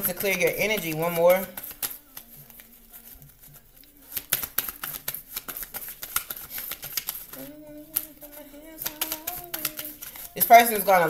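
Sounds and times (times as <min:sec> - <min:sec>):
cards being shuffled: 0:00.0 - 0:11.0.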